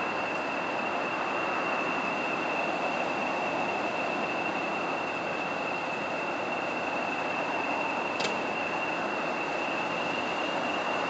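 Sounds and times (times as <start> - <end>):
diesel locomotive idling: 0.0 - 11.0
high turbocharger whistle: 0.0 - 11.0.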